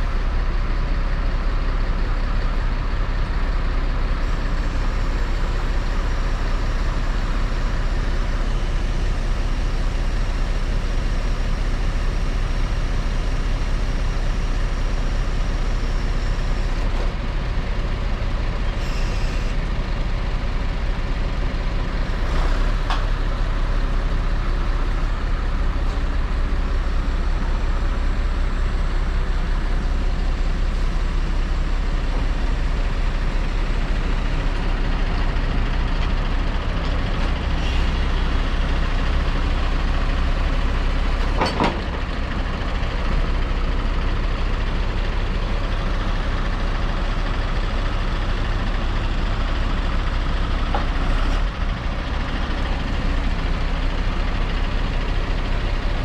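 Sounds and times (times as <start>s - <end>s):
truck diesel engine running: 0.0s - 56.0s
crane hydraulics: 18.7s - 19.7s, 31.9s - 42.4s.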